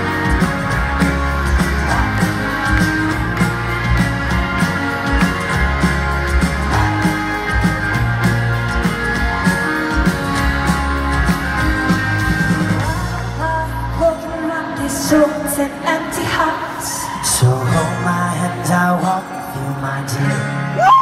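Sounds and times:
people singing: 0.0s - 5.7s
heavy bass: 0.0s - 15.0s
live band playing: 0.0s - 21.0s.

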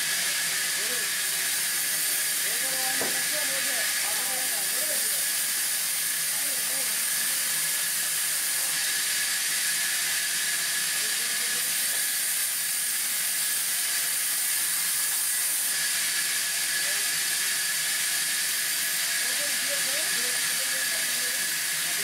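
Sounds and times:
band saw cutting wood: 0.0s - 22.0s.

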